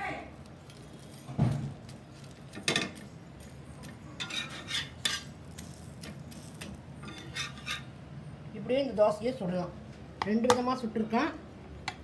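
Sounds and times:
spatula scraping metal griddle: 4.2 - 5.8, 6.4 - 8.0.

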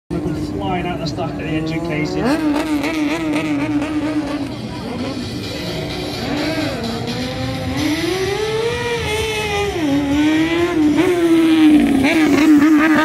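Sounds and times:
motorcycle engine revving: 0.1 - 13.0.

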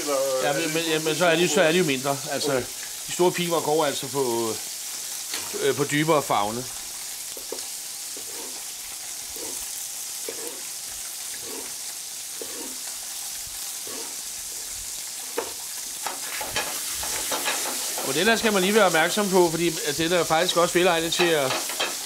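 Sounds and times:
fish sizzling in a pan: 0.0 - 22.0
knife slicing on cutting board: 10.2 - 10.7, 12.4 - 12.8.

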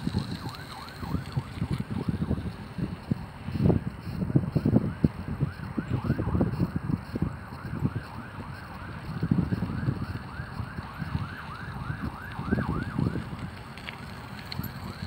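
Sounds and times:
wind buffeting microphone: 0.0 - 15.0
siren yelping: 0.1 - 2.1, 4.9 - 13.4.

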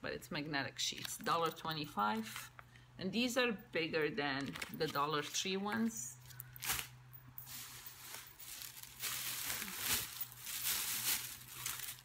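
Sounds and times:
plastic packaging crinkling: 6.2 - 12.0.

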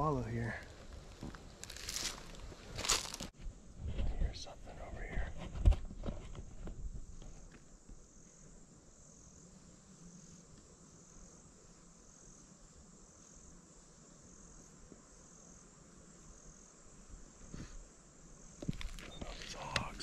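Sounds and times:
insect trilling: 18.3 - 20.0.

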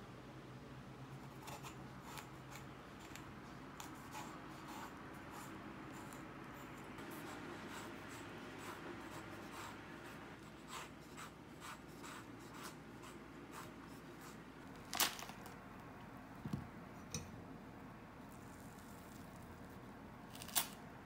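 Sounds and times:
knife scratching peach skin: 1.2 - 14.4.

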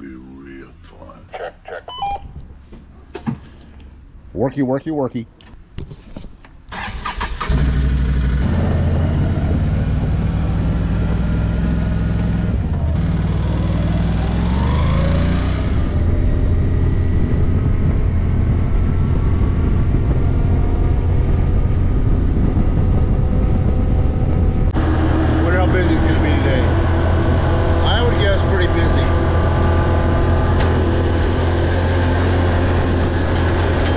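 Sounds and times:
quad bike engine revving: 7.2 - 16.3, 24.8 - 33.9.

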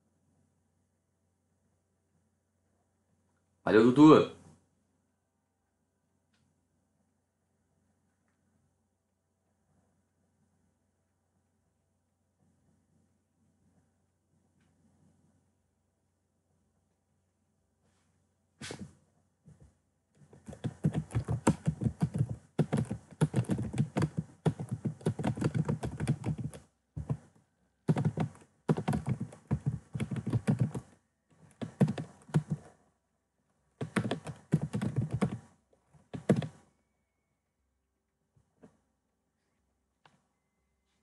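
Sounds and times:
typing on computer keyboard: 20.3 - 27.3, 27.9 - 32.7, 33.8 - 35.5, 36.1 - 36.6.

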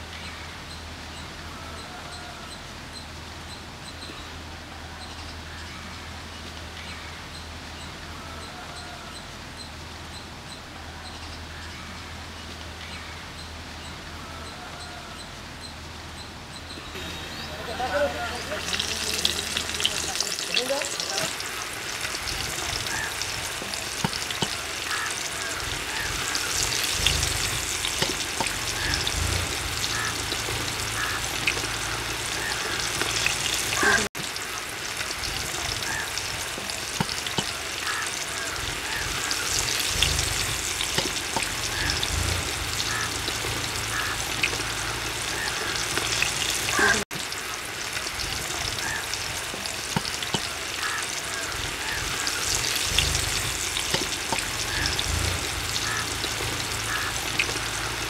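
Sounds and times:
chicken deep-frying in oil: 16.9 - 58.0.

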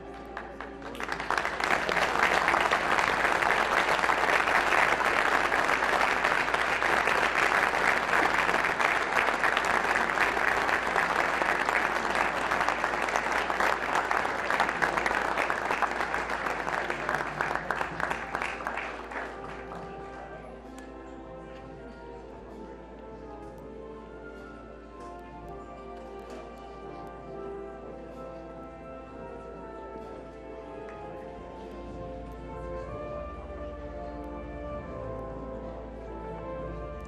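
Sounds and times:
audience applauding: 0.0 - 20.5.

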